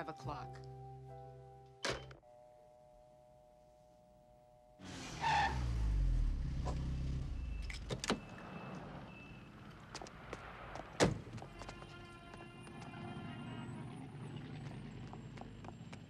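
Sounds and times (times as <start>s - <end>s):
car engine slowing to a stop: 4.8s - 9.2s, 12.9s - 16.0s.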